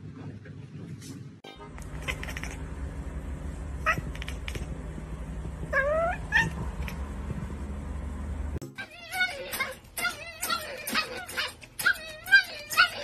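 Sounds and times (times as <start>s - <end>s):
steady low hum: 0.0s - 8.6s
cat meowing: 1.8s - 2.6s, 3.8s - 4.7s, 5.7s - 7.0s.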